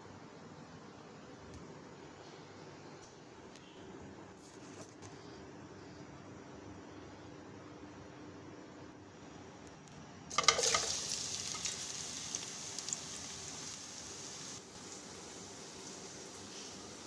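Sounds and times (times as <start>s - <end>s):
onions sizzling in hot oil: 10.3s - 17.0s.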